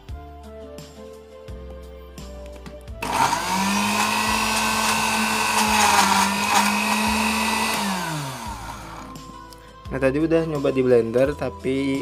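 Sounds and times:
blender motor whining: 3.0s - 9.3s.

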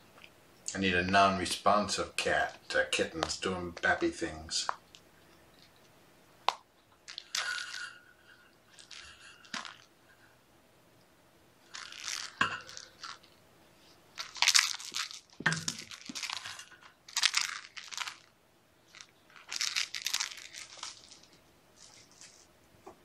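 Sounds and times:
scratchy crinkling and rustling: 7.0s - 8.0s, 8.7s - 9.9s, 11.6s - 18.3s, 18.9s - 23.0s.

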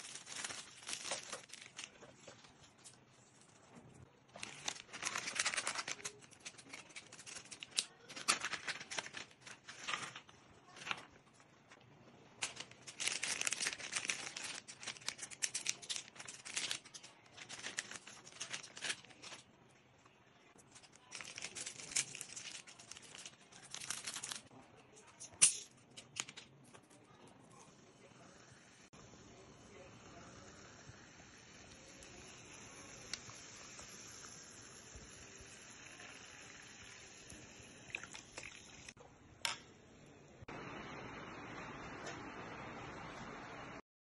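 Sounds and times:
plastic packets crinkling: 0.0s - 3.0s, 4.3s - 11.1s, 12.4s - 19.5s, 20.6s - 24.5s.

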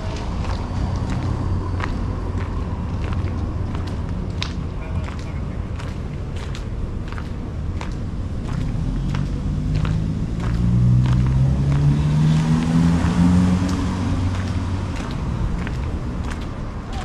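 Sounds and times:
footsteps walking: 0.0s - 17.0s
vehicle passing close by: 8.5s - 16.6s.

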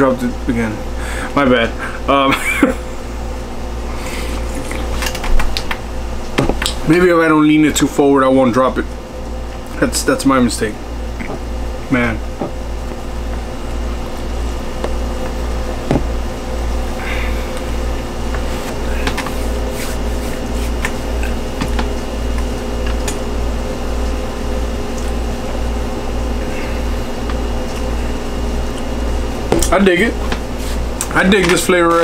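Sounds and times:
steady machine hum: 0.0s - 32.0s.

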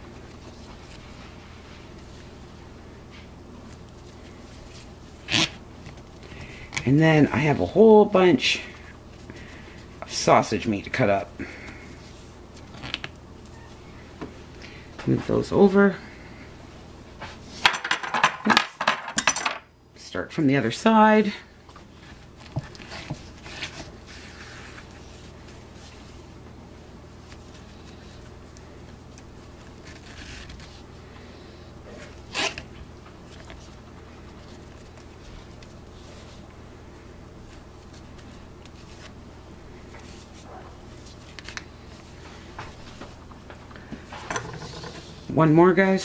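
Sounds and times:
low steady hum: 0.0s - 46.0s
twine rustling and rubbing: 21.7s - 30.9s, 31.9s - 36.5s, 37.4s - 39.2s, 39.8s - 43.4s.

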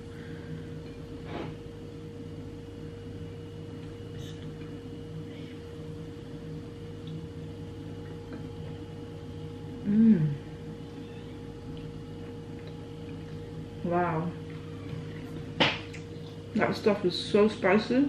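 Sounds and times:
low appliance hum: 0.0s - 18.0s
person humming mm: 4.1s - 5.7s, 9.8s - 10.6s
eating by hand and chewing: 6.9s - 7.4s, 11.0s - 13.6s.

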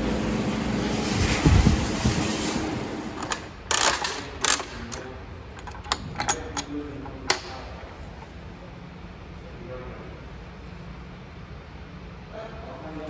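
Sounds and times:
vending machine crank clicking: 3.2s - 7.7s.

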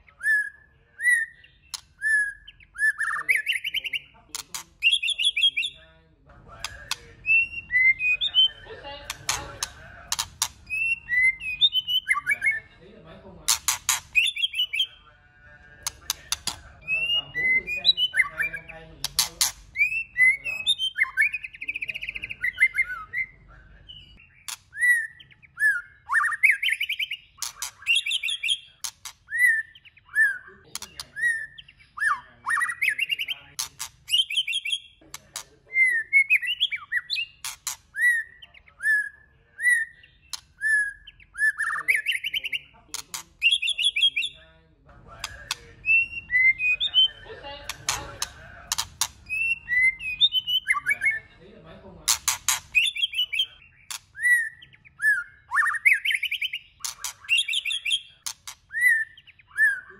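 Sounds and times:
bird singing whistled phrases: 0.0s - 4.1s, 4.8s - 5.8s, 6.9s - 8.7s, 10.7s - 12.7s, 14.2s - 15.0s, 16.4s - 33.4s, 34.1s - 35.0s, 35.7s - 42.7s, 43.4s - 44.4s, 45.3s - 47.2s, 48.7s - 51.3s, 52.5s - 59.9s
sharp bird clicks: 1.5s - 5.7s, 6.6s - 12.5s, 13.5s - 14.9s, 15.8s - 17.2s, 17.9s - 23.0s, 24.2s - 35.6s, 36.2s - 38.6s, 39.8s - 44.3s, 45.2s - 51.0s, 52.1s - 59.4s.

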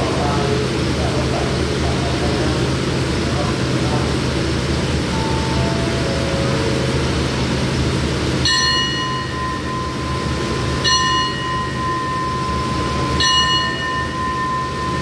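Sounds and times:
low hum from train: 0.0s - 15.0s
station bell ringing: 4.7s - 15.0s.

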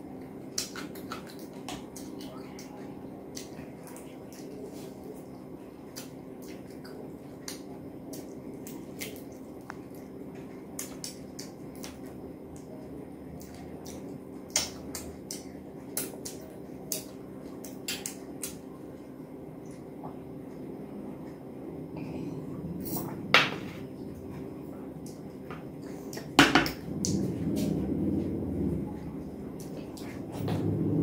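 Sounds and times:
wet chewing and lip-smacking: 0.2s - 5.3s, 5.9s - 18.7s.

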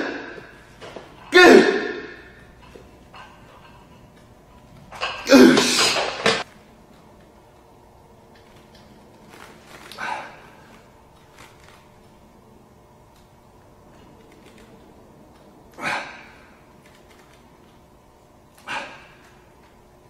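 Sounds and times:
man grunting and exhaling: 1.3s - 2.4s, 5.0s - 6.2s, 15.8s - 16.6s, 18.6s - 19.2s.

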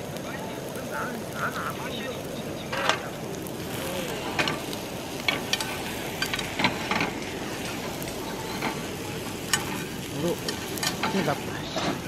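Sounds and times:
food sizzling in a pan: 0.0s - 12.0s
metal tongs scraping a pan: 5.2s - 12.0s.

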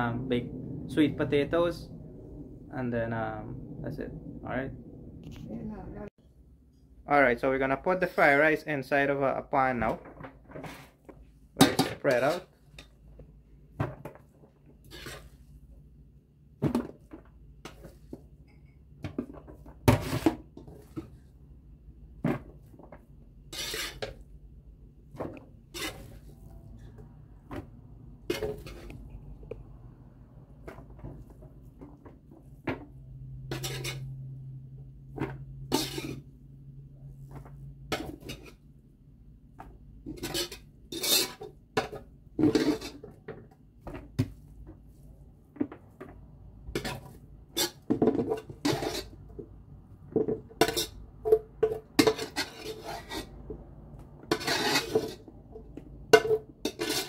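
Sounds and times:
low steady hum: 0.0s - 7.1s
metal spoon scraping pot: 14.8s - 15.4s, 23.5s - 24.2s, 25.7s - 26.8s, 33.4s - 34.4s, 35.6s - 36.3s, 40.1s - 43.2s, 46.8s - 49.2s, 50.5s - 53.6s, 54.2s - 55.3s, 56.1s - 57.0s.

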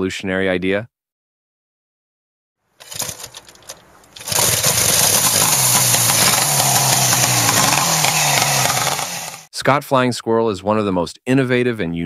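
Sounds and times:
motorcycle engine running: 2.8s - 9.5s.

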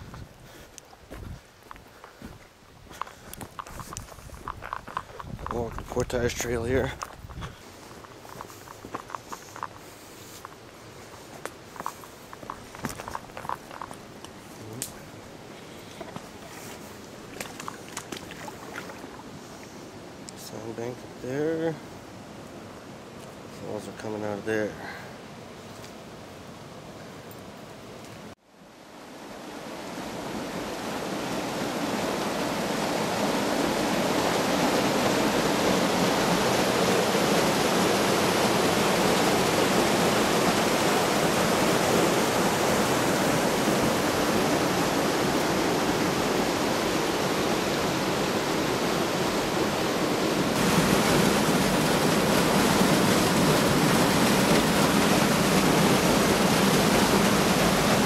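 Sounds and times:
waterfall roaring: 29.1s - 58.0s.

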